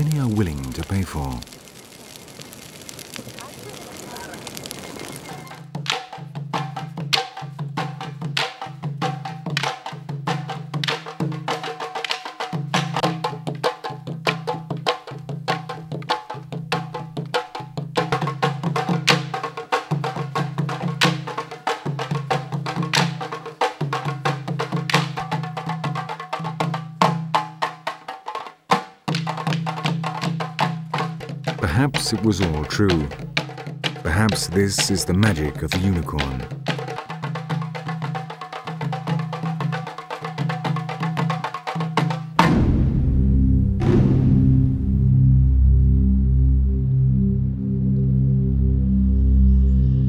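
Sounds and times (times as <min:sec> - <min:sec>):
low drum pulse: 0:42.4 - 0:48.8.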